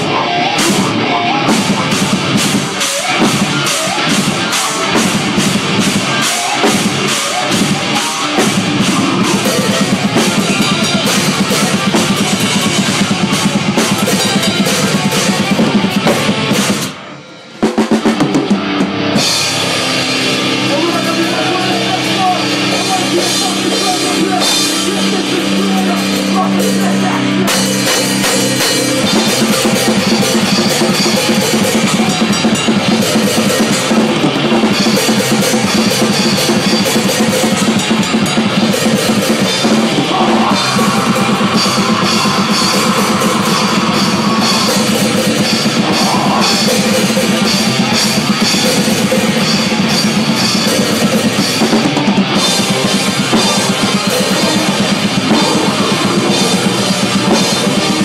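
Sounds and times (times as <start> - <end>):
fast drum and cymbal hits: 0.0 - 58.0
metal band playing: 0.0 - 58.0.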